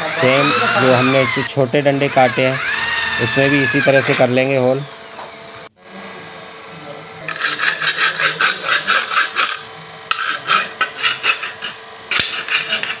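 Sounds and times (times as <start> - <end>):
hand file scraping metal: 7.3 - 13.0.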